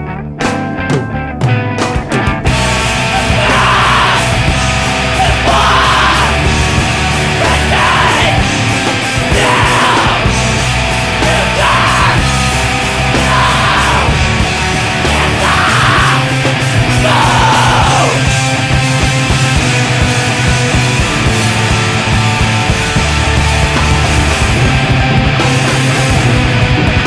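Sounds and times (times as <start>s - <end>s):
distorted punk rock with drums: 0.0s - 27.0s
person shouting vocals: 3.2s - 4.4s, 5.1s - 6.5s, 7.4s - 8.4s, 9.3s - 10.3s, 11.2s - 12.3s, 13.2s - 14.2s, 15.0s - 16.3s, 16.9s - 18.2s.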